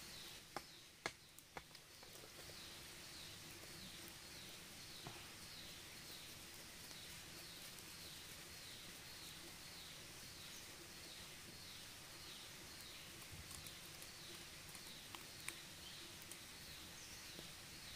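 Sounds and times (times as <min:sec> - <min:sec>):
twigs snapping in campfire: 0:00.5 - 0:02.6, 0:12.7 - 0:17.6.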